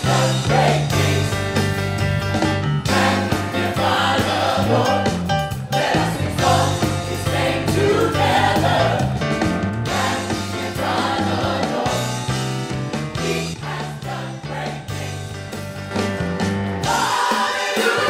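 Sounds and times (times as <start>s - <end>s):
group singing gospel song: 0.0s - 1.5s, 2.9s - 9.3s, 9.9s - 12.4s, 13.2s - 15.2s, 16.8s - 18.0s
low bass notes: 0.0s - 16.9s
keyboard: 0.0s - 18.0s.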